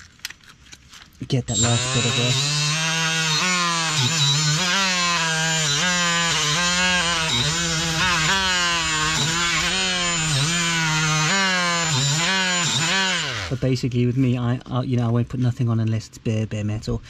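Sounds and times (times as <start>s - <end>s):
power tool grinding metal: 1.5s - 14.3s.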